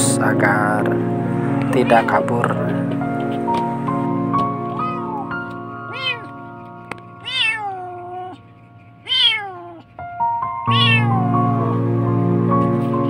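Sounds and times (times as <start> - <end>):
background music: 0.0 - 13.0
kitten meowing: 4.7 - 5.3, 5.9 - 6.3, 7.2 - 8.4, 9.0 - 9.9, 10.7 - 11.7.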